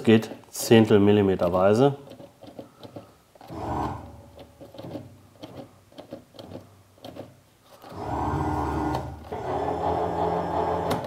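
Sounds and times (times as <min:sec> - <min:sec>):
electric motor humming: 0:03.4 - 0:04.3, 0:07.9 - 0:11.0.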